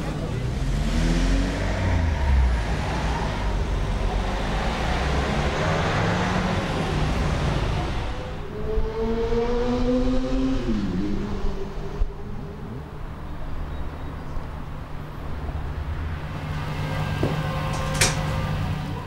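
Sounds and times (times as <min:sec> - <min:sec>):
cars driving past: 0:00.0 - 0:19.0
engine note rising: 0:00.4 - 0:13.2.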